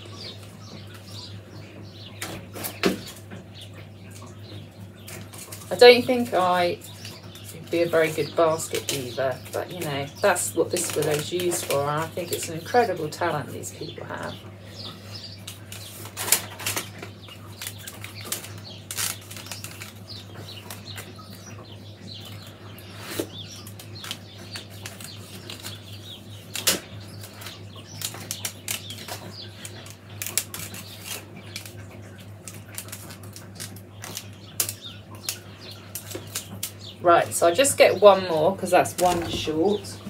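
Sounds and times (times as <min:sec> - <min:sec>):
willow rods rustling and creaking: 0:05.0 - 0:21.2, 0:22.8 - 0:40.0.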